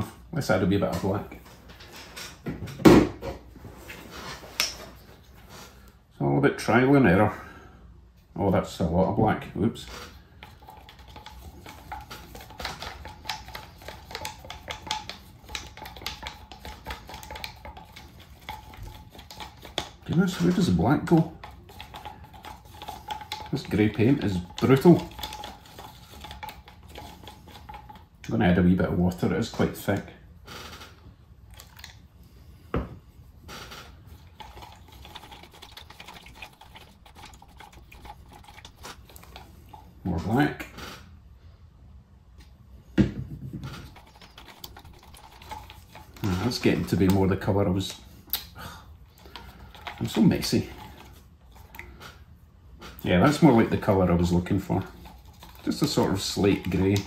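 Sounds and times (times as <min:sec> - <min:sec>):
stir stick tapping plastic cup: 0:10.4 - 0:28.1, 0:34.4 - 0:39.8, 0:43.8 - 0:48.0, 0:53.8 - 0:57.0.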